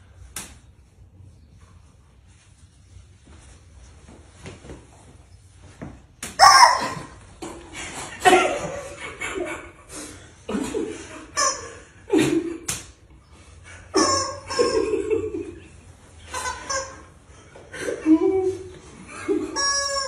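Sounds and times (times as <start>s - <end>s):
rubber chicken toys squawking: 6.4s - 7.2s, 11.3s - 11.8s, 13.9s - 15.3s, 16.2s - 17.2s, 19.3s - 20.0s
men laughing: 6.9s - 12.7s, 13.8s - 19.7s.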